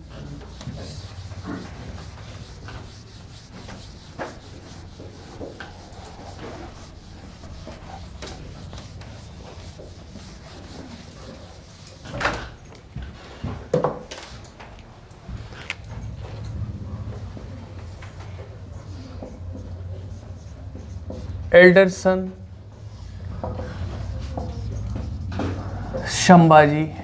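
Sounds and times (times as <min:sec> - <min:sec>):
duster rubbing on whiteboard: 0:00.0 - 0:12.2, 0:17.0 - 0:22.1, 0:22.7 - 0:26.4.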